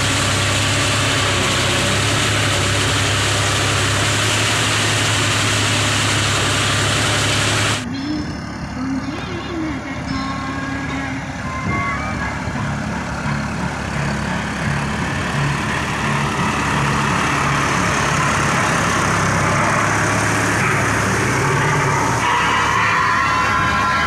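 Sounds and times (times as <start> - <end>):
blades churning wet mud: 0.0 - 7.8, 12.6 - 24.0
tractor diesel engine under load: 0.0 - 24.0.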